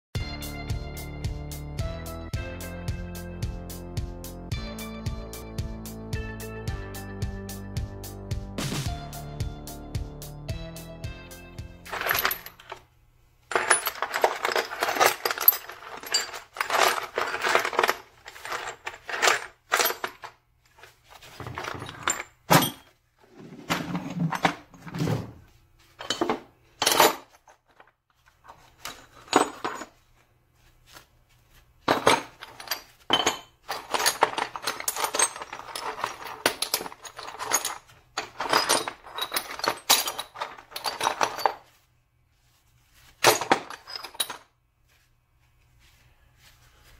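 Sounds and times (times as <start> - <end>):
metal pieces clinking together: 11.9 - 12.8, 13.5 - 20.3, 31.9 - 41.7, 43.2 - 44.5.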